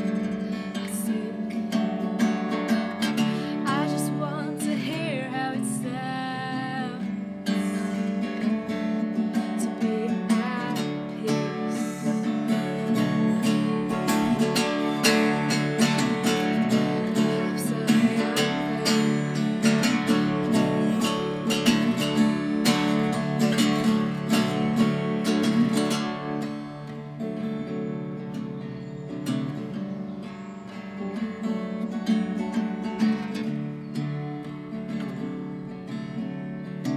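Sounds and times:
acoustic guitar strumming chords: 0.0s - 36.9s.

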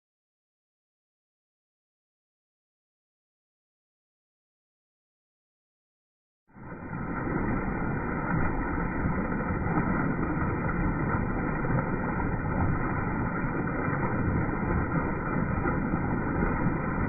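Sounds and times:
waterfall splashing into pool: 6.5s - 17.0s.

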